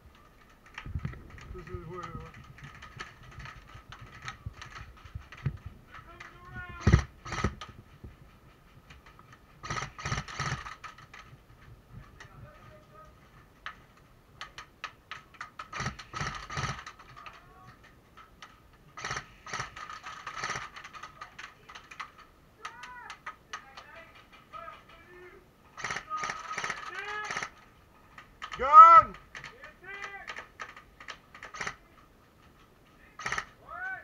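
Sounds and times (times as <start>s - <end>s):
airsoft guns firing full-auto: 9.6s - 11.1s, 15.6s - 17.0s.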